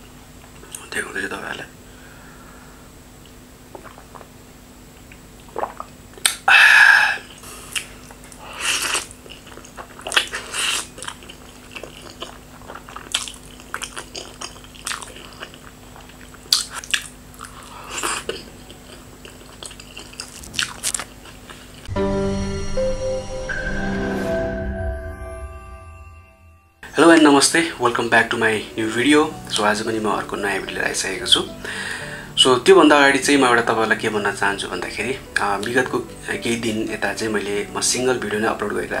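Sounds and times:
chewing: 0:07.3 - 0:21.9.

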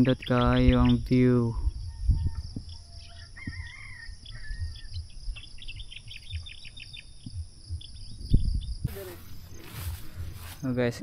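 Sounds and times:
birds chirping and calling: 0:00.0 - 0:11.0
high insect drone: 0:00.0 - 0:11.0
low thumps: 0:06.2 - 0:10.6.

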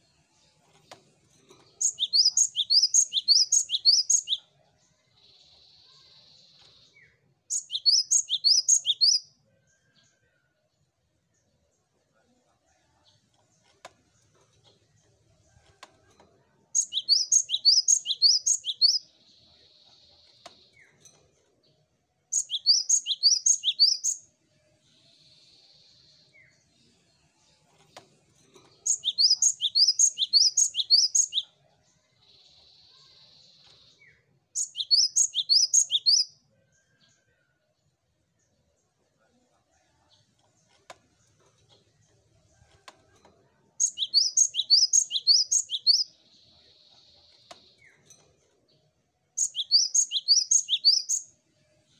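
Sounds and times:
great tit singing: 0:01.6 - 0:04.6, 0:05.2 - 0:09.3, 0:16.7 - 0:21.0, 0:22.3 - 0:24.2, 0:28.7 - 0:31.5, 0:32.2 - 0:36.4, 0:43.8 - 0:48.0, 0:49.4 - 0:51.3.

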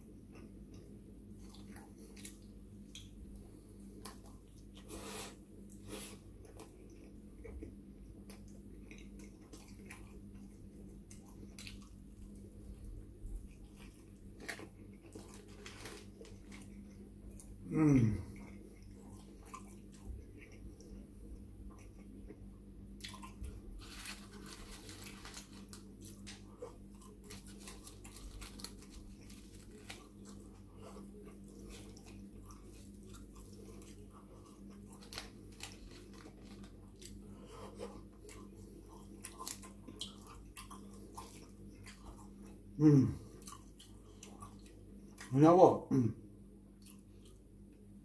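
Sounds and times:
person chewing food: 0:00.0 - 0:45.3, 0:46.7 - 0:47.9
person humming mmm: 0:17.6 - 0:18.4, 0:42.8 - 0:43.2.

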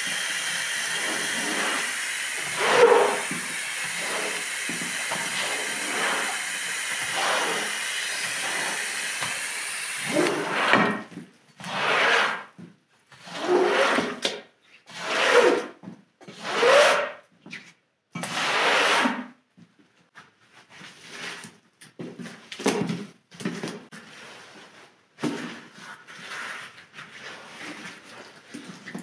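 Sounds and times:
brush scrubbing wet rug: 0:00.0 - 0:11.0, 0:11.7 - 0:12.5, 0:13.3 - 0:14.2, 0:25.9 - 0:29.0
rustles and scrapes of wet rug: 0:23.9 - 0:29.0.

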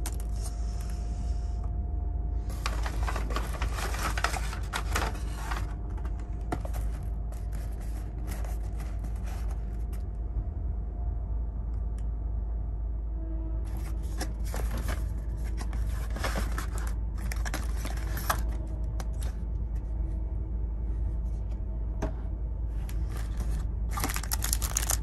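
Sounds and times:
paper and cardboard rustling: 0:02.5 - 0:10.0, 0:13.7 - 0:19.4, 0:22.9 - 0:25.0.

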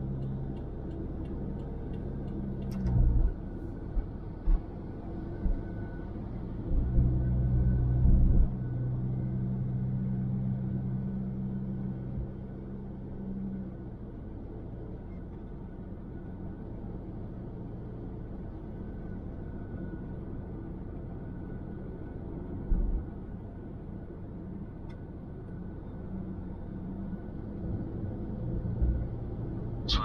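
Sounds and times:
car road and engine noise: 0:00.0 - 0:30.0.

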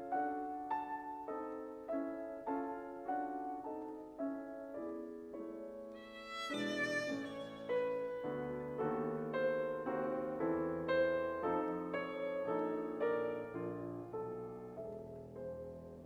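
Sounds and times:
grand piano chords: 0:00.0 - 0:16.0.

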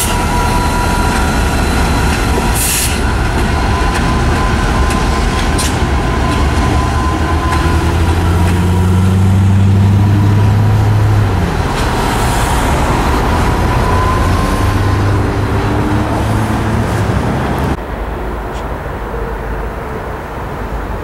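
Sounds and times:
traffic rumble and hiss: 0:00.0 - 0:21.0
passing car engine hum: 0:06.0 - 0:20.9.

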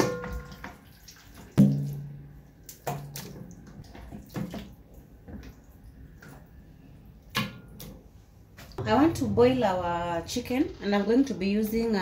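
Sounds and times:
wet splashes: 0:00.1 - 0:06.6.

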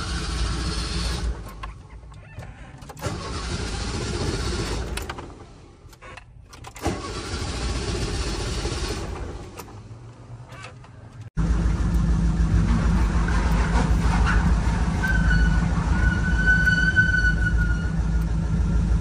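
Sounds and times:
car engine running: 0:00.0 - 0:06.0, 0:07.0 - 0:16.0, 0:17.3 - 0:19.0
starter cranking engine: 0:02.5 - 0:05.4, 0:06.5 - 0:09.3.

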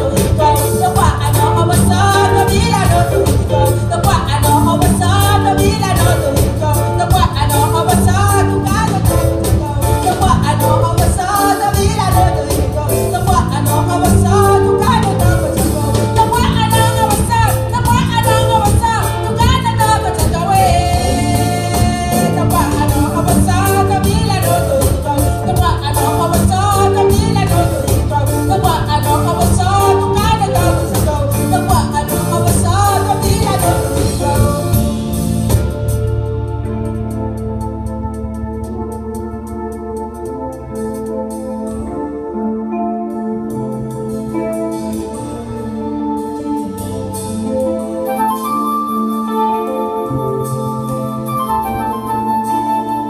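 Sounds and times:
woman singing: 0:00.0 - 0:35.9
live band playing: 0:00.0 - 0:53.0.

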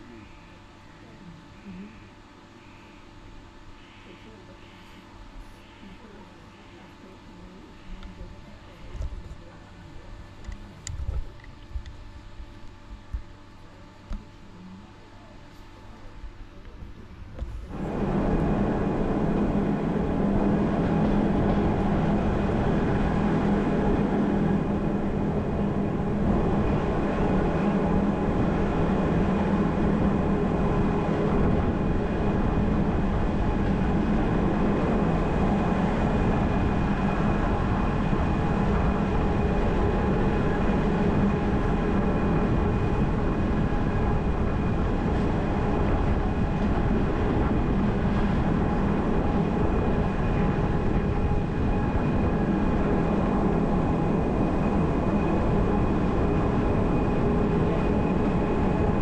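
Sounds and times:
constant hum: 0:00.0 - 0:59.0
train running on rack line: 0:17.7 - 0:43.5.

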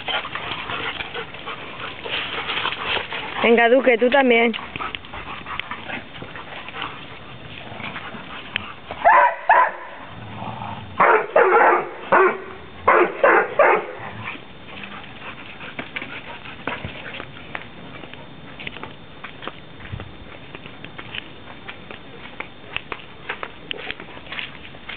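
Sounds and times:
dogs barking: 0:09.0 - 0:10.1, 0:11.0 - 0:14.1.

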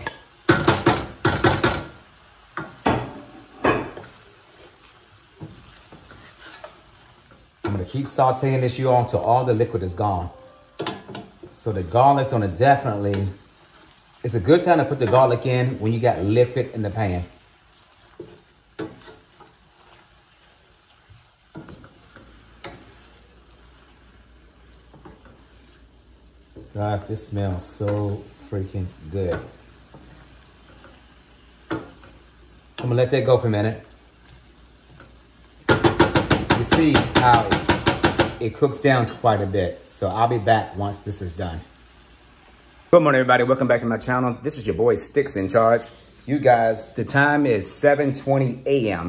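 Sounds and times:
faint sizzle of frying: 0:00.0 - 0:49.0
wooden spoon scraping a pan: 0:00.8 - 0:10.1, 0:10.8 - 0:38.2.

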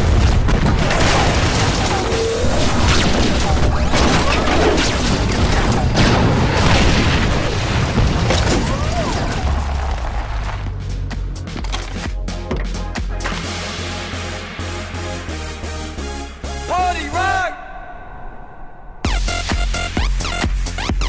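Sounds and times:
booms and explosions: 0:00.0 - 0:10.3
laser blast zaps: 0:00.6 - 0:07.7
dramatic music score: 0:09.0 - 0:20.4.

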